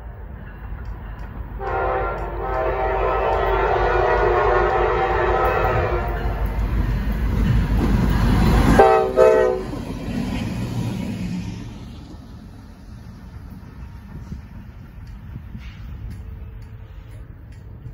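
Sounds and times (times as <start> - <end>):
locomotive engine and wheel rumble: 0.0 - 17.9
train horn blast: 1.6 - 6.4, 8.7 - 9.8.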